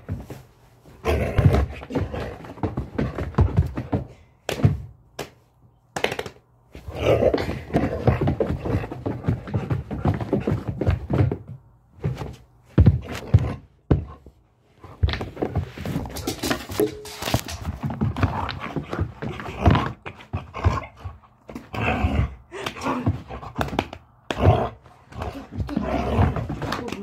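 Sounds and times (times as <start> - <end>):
thumps and knocks of dog play: 1.3 - 4.9, 7.3 - 14.3, 14.9 - 21.8, 23.0 - 27.0.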